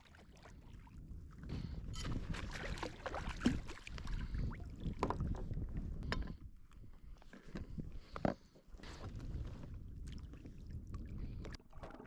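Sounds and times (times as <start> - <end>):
water splashing: 2.0 - 5.0.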